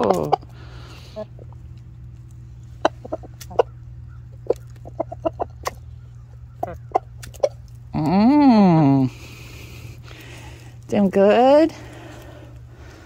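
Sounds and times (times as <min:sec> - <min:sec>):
chickens clucking: 0:00.0 - 0:07.9.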